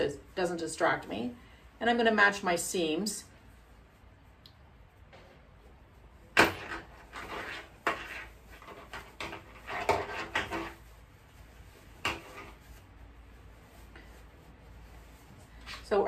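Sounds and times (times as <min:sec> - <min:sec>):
quilted fabric rustling: 0:06.8 - 0:16.0.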